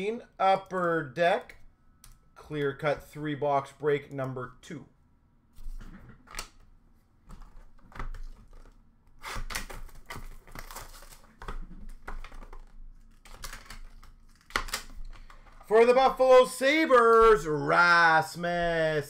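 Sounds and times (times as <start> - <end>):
wrapping crinkling: 7.6 - 15.7.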